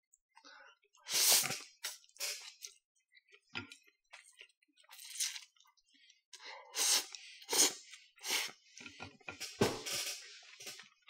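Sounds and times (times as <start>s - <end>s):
slurping noodles: 1.0s - 2.8s, 6.7s - 9.0s.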